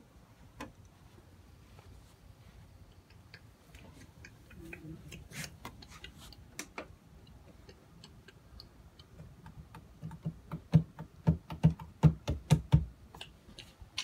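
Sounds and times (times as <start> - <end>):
sharp clicks and knocks: 5.1 - 14.0.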